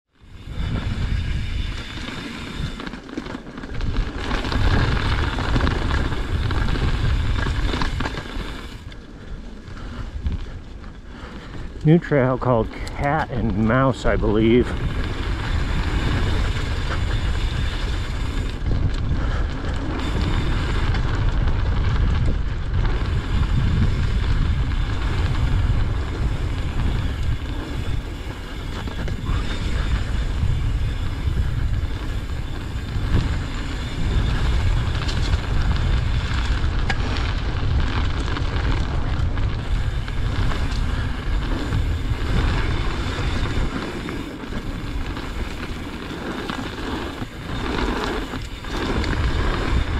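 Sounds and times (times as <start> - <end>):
wind rushing over mic: 0.2 - 2.9, 3.7 - 9.0, 11.5 - 49.9
tyre noise on dirt: 0.2 - 49.9
bike knocks and rattles: 0.4 - 8.8.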